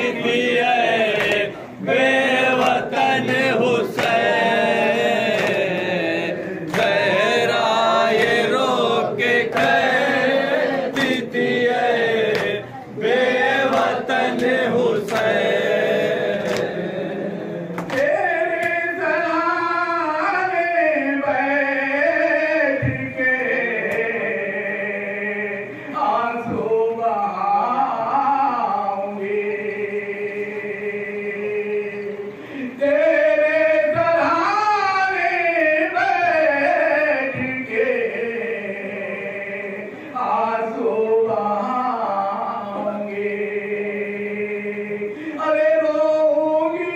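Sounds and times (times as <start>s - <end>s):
men and boys chanting in unison: 0.0s - 46.9s
hands slapping on chests: 2.6s - 4.3s, 5.3s - 5.7s, 12.2s - 12.6s, 17.8s - 18.8s.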